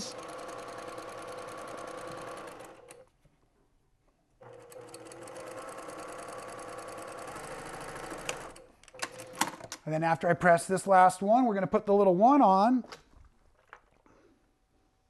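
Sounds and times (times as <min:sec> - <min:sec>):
sewing machine stitching: 0:00.0 - 0:03.0, 0:04.4 - 0:09.6.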